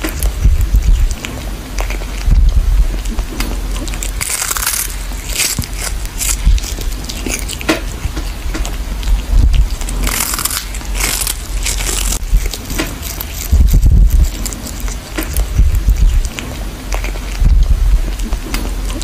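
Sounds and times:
low thumps: 0.0s - 1.2s, 2.2s - 4.0s, 5.4s - 10.2s, 10.8s - 16.4s, 17.4s - 18.8s
cat crunching dried fish: 0.0s - 19.0s.

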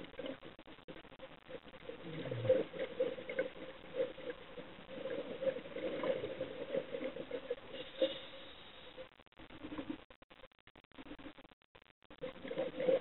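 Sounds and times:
air bubbling underwater: 2.0s - 2.8s.

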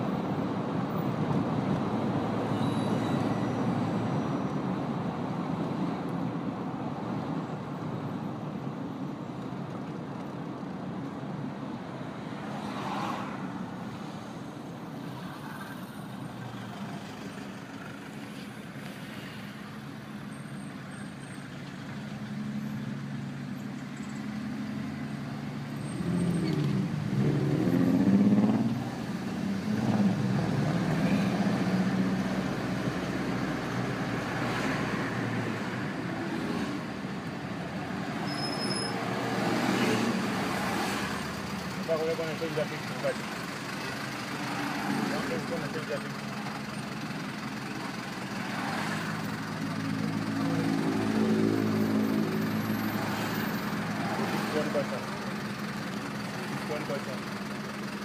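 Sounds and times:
city street traffic: 0.0s - 58.0s
vehicle engine passing close: 25.9s - 37.1s, 39.0s - 57.6s.

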